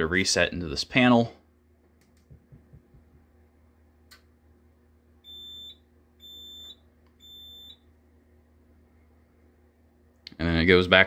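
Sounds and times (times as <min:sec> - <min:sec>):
high beeps: 0:05.3 - 0:07.8.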